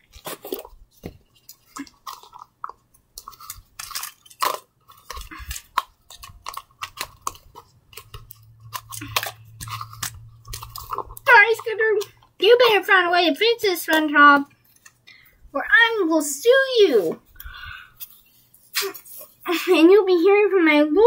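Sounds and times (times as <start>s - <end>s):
handling clicks and rustles: 0.0s - 12.8s.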